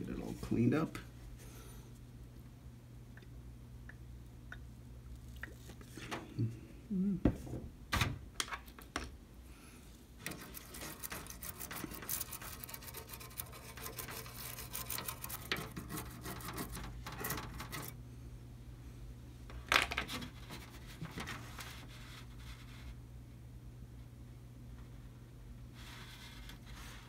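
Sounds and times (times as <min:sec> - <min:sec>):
brush scrubbing circuit board: 0:10.2 - 0:18.0.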